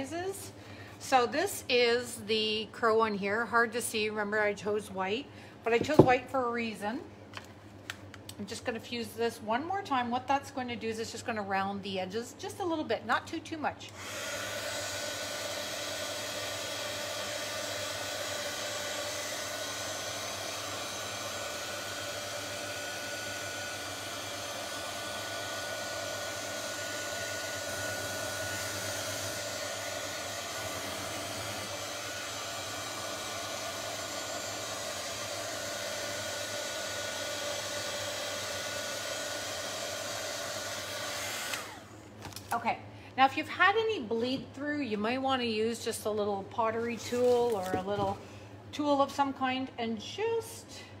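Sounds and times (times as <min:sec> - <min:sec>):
heat gun blowing: 0:13.9 - 0:42.0.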